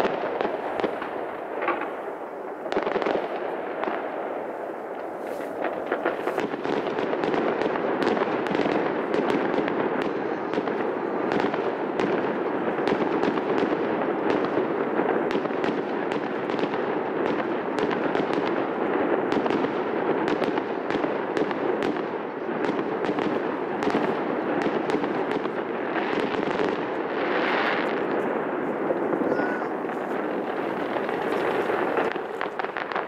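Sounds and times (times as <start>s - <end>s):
crackling pops: 0.0s - 4.1s, 4.8s - 9.4s, 22.6s - 33.0s
fireworks bursts: 0.0s - 33.0s
fireworks hiss: 5.1s - 6.6s, 27.2s - 33.0s.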